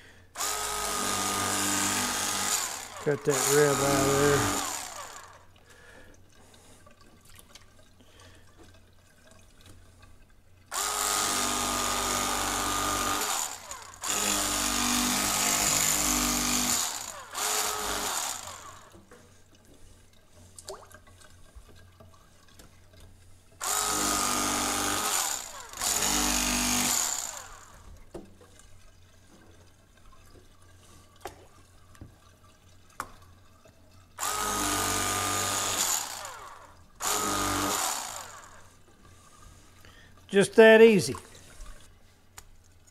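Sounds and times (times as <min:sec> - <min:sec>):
electric fillet knife whine: 0:00.4 - 0:05.5, 0:10.7 - 0:19.0, 0:23.6 - 0:27.8, 0:34.2 - 0:38.7.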